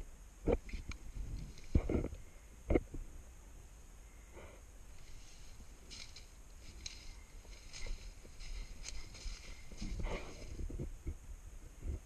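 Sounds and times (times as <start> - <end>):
footsteps crunching on dry leaves: 5.0 - 10.6.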